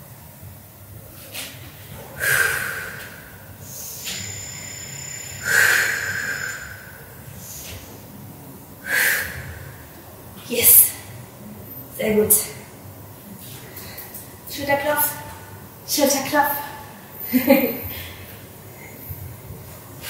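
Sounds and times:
woman breathing hard: 2.1s - 8.0s, 8.8s - 9.9s.

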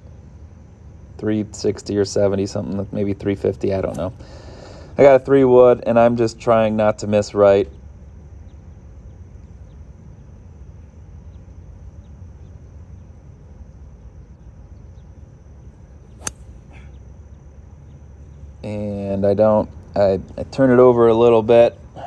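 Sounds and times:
low outdoor rumble: 0.0s - 22.0s
faint chirps: 0.8s - 22.0s
golf club striking ball: 16.1s - 16.9s.

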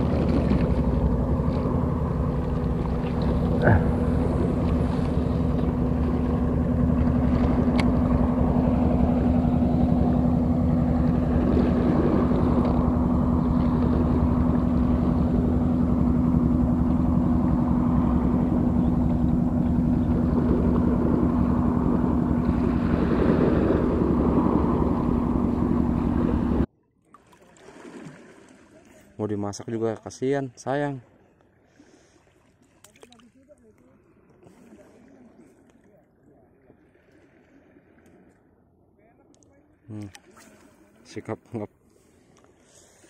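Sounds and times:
engine running: 0.0s - 26.7s.

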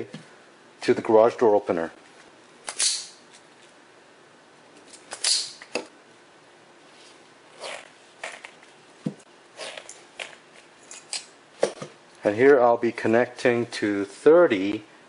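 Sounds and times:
wire stripper snip: 2.6s - 3.2s.

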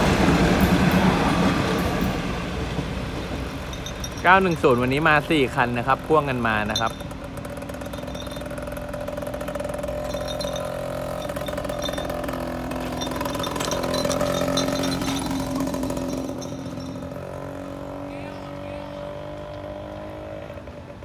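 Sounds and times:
diesel train engine drone: 0.0s - 21.0s.

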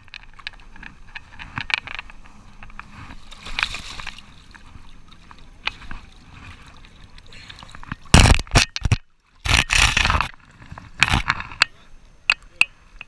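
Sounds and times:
camera handling rubbing noise: 8.1s - 11.6s.

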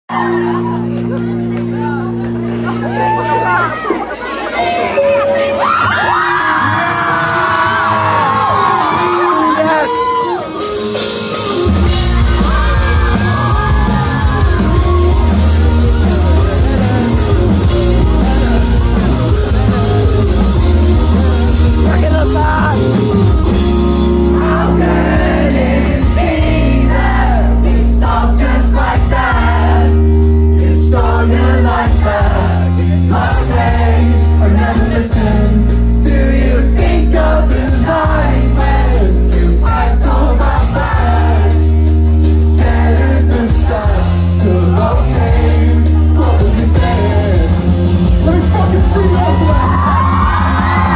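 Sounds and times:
live band playing: 0.1s - 50.9s
lead singer: 4.5s - 50.9s
heavy bass: 10.3s - 50.9s.

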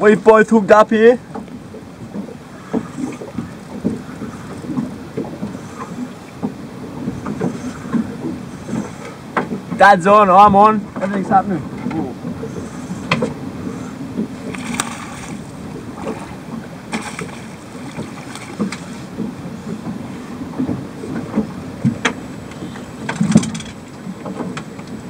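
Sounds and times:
choppy water: 0.0s - 25.0s
wind: 0.0s - 25.0s
short knocks and clicks: 13.0s - 13.4s.

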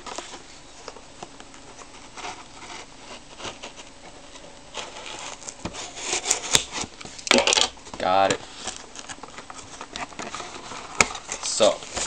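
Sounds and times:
scissors cutting cardboard: 4.8s - 6.9s.

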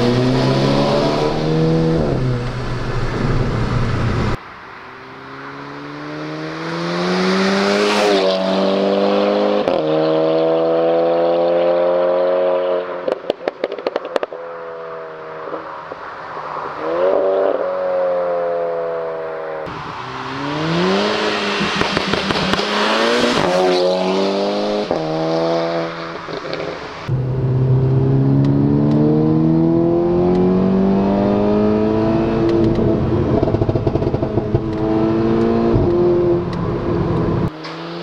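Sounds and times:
car engine accelerating: 0.0s - 13.1s, 16.6s - 38.0s
exhaust pops and crackles: 13.0s - 14.4s, 32.5s - 34.9s.

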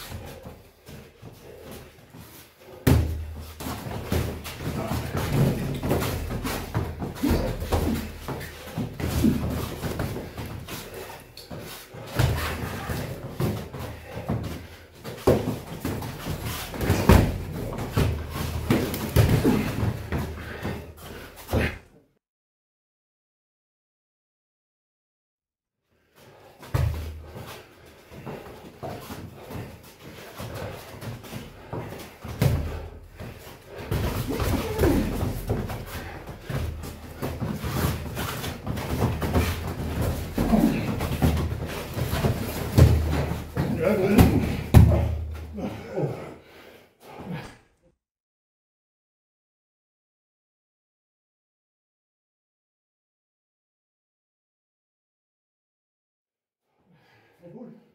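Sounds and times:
boxing gloves thudding: 2.8s - 11.2s, 12.0s - 20.7s, 33.7s - 45.7s.

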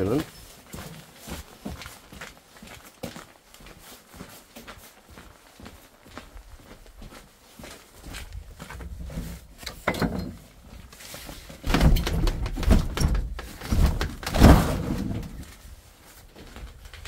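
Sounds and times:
footsteps in deep snow: 0.0s - 9.4s.

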